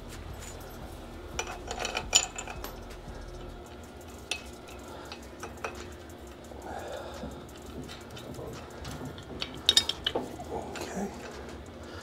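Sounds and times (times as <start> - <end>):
metal pipe fitting clinking: 0.4 - 6.6, 7.2 - 11.7.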